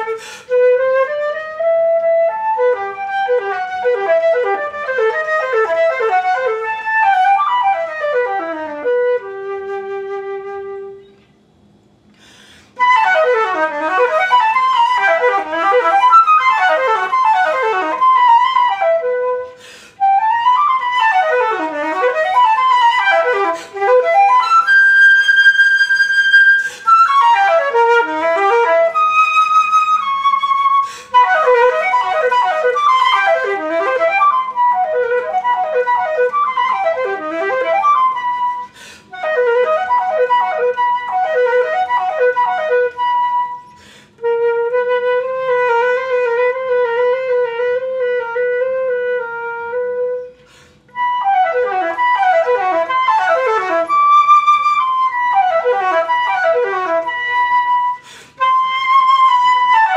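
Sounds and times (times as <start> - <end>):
flautist breathing: 0.0 - 0.6, 11.0 - 12.9, 19.3 - 20.8, 22.2 - 27.9, 29.7 - 31.4, 38.3 - 39.2, 43.5 - 44.4, 50.2 - 51.1, 57.7 - 59.9
flute playing fast arpeggios: 0.0 - 11.2, 12.7 - 59.9.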